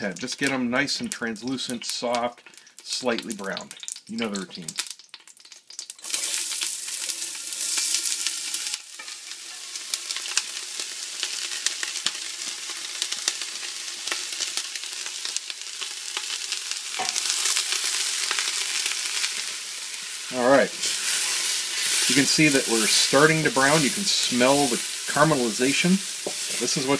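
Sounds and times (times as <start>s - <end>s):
vegetables sizzling in hot oil: 0.0s - 26.9s
wooden spoon stirring vegetables: 20.8s - 26.9s.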